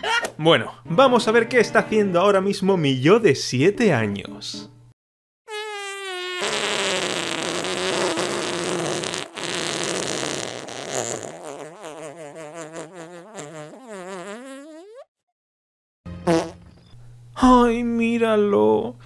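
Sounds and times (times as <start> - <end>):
comic fart sound effect: 5.5 - 15.1, 16.2 - 16.8.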